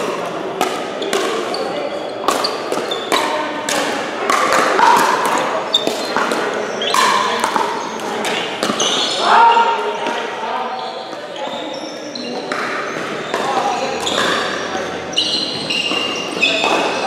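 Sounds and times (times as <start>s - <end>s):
paddles hitting plastic ball: 0.0s - 9.0s.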